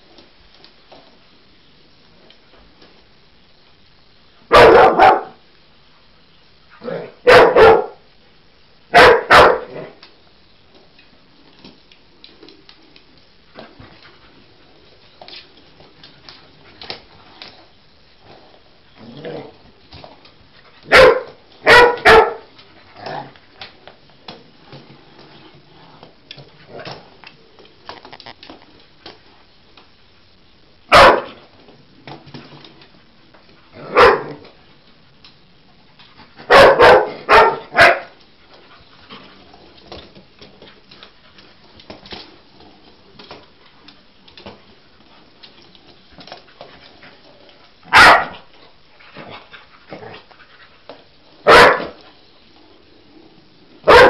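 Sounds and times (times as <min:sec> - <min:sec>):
dog barking: 0:04.5 - 0:05.4, 0:06.9 - 0:08.0, 0:08.9 - 0:09.9, 0:20.9 - 0:22.5, 0:30.9 - 0:31.4, 0:33.9 - 0:34.4, 0:36.5 - 0:38.1, 0:47.9 - 0:48.4, 0:51.4 - 0:52.0.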